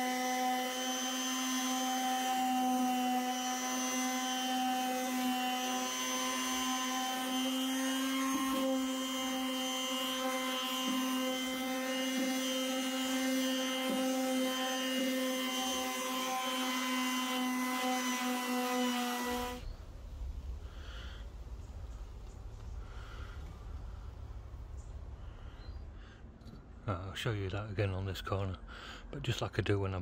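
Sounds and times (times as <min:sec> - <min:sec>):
palm sander humming and whining: 0:00.0 - 0:21.5.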